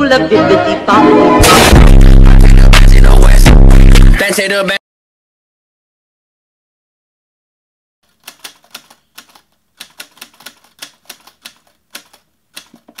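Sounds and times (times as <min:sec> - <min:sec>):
typewriter keys clacking: 0:08.1 - 0:13.0.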